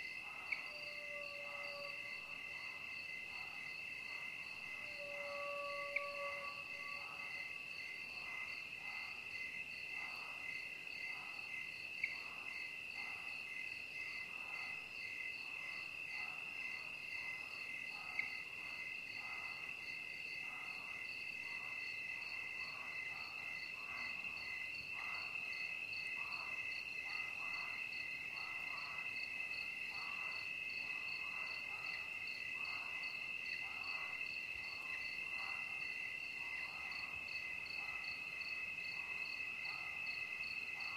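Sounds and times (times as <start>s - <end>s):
crickets trilling: 0.0s - 8.6s.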